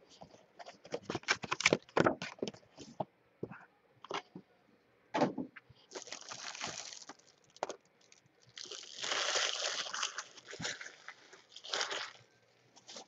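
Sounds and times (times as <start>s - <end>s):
plastic wrap crinkling: 5.9s - 13.0s.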